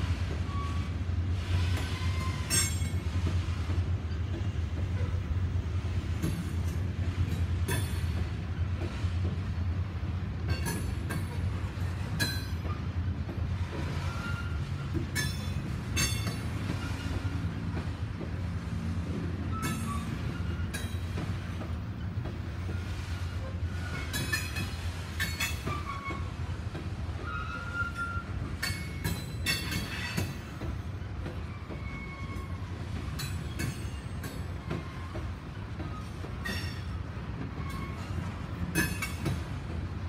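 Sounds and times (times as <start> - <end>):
steel wheels rumbling on rail: 0.0 - 40.0
wheels clanking over rail joints: 0.0 - 40.0
high wheel squeals: 0.4 - 3.0, 13.9 - 17.6, 19.4 - 21.3, 25.3 - 26.6, 27.2 - 39.3.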